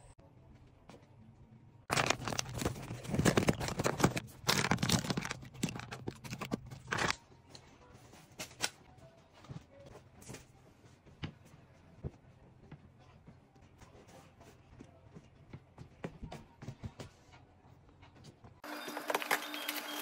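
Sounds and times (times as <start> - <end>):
plastic bag crinkling: 1.9 - 7.1.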